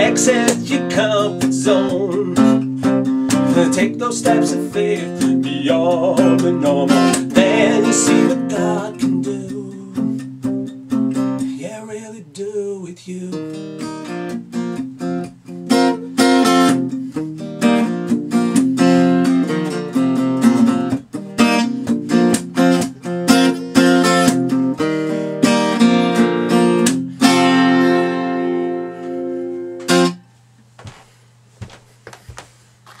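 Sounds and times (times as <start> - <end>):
acoustic guitar strumming: 0.0 - 31.0
faint taps: 30.6 - 32.5.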